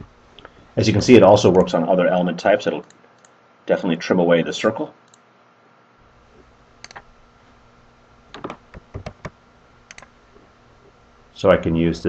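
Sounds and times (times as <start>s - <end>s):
steady low hiss: 0.0s - 12.0s
mouse and keyboard clicks: 9.9s - 10.1s.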